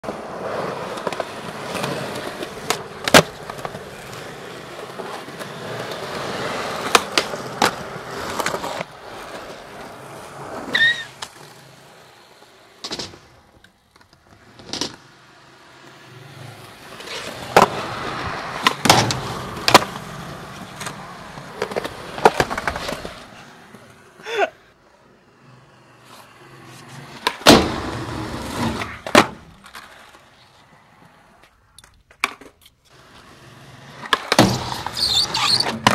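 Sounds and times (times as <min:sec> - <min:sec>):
skateboard wheels rolling on concrete: 0:00.0 - 0:35.9
skateboard clacks popping and landing: 0:00.8 - 0:09.0, 0:12.8 - 0:15.2, 0:16.5 - 0:23.4, 0:26.9 - 0:30.2, 0:31.4 - 0:32.9, 0:33.9 - 0:35.9.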